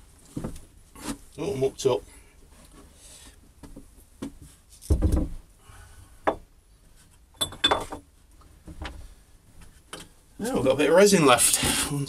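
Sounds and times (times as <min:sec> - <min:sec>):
objects knocking on wood: 0:03.6 - 0:05.4
heavy thump on workbench: 0:04.9 - 0:05.4.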